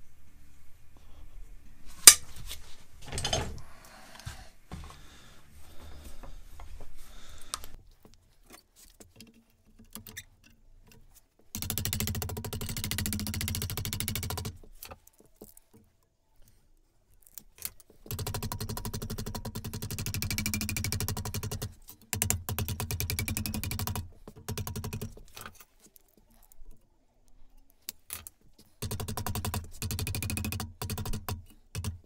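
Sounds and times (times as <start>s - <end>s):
metal sheet clicks and taps: 11.6s - 15.9s, 17.5s - 25.6s, 27.8s - 32.0s.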